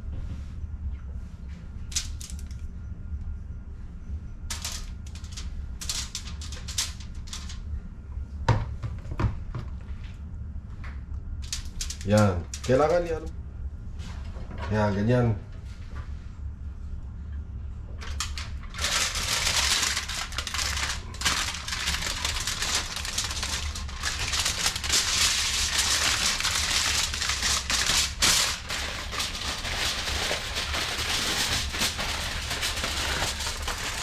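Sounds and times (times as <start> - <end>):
aluminium foil crinkling: 1.9 - 2.6, 4.5 - 7.6, 11.4 - 13.3, 18.0 - 34.0.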